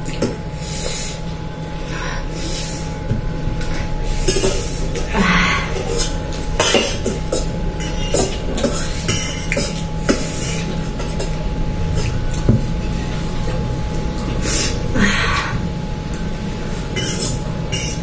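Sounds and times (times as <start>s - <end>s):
faint background hum: 0.0s - 18.0s.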